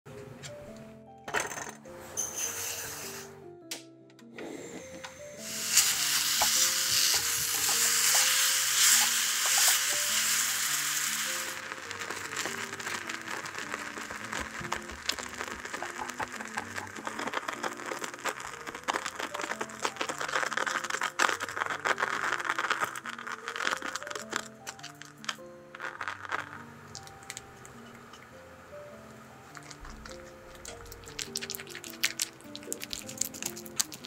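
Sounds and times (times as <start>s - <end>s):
loud even hiss: 4.5s - 21.3s
fruit crackling and bubbling: 5.3s - 28.0s, 29.4s - 34.0s.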